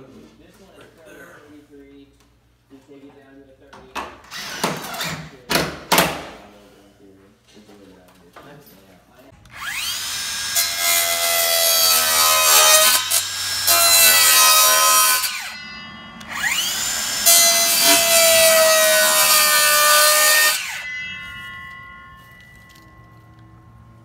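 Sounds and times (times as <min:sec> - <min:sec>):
circular saw cutting panel: 0:09.5 - 0:22.1.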